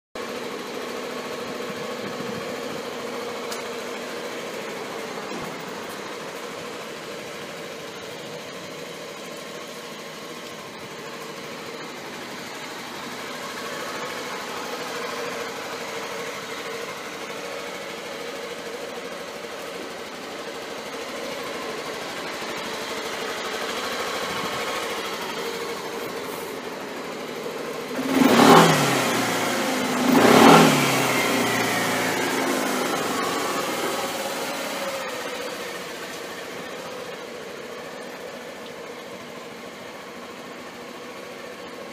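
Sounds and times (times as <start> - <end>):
scooter engine idling and revving: 0.1 - 41.9.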